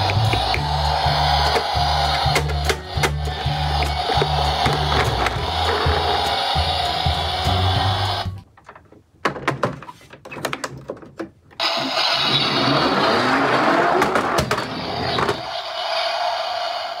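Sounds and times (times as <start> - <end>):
toy truck rolling and whirring: 0.0 - 8.2, 11.6 - 17.0.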